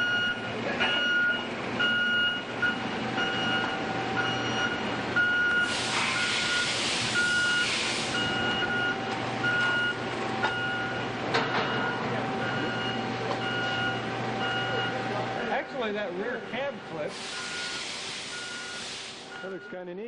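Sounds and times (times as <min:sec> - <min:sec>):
low machine hum: 0:00.0 - 0:05.8, 0:06.4 - 0:17.5
forklift reverse alarm beeping: 0:00.0 - 0:15.5, 0:17.2 - 0:19.9
loud hiss: 0:05.6 - 0:08.2, 0:17.1 - 0:19.3.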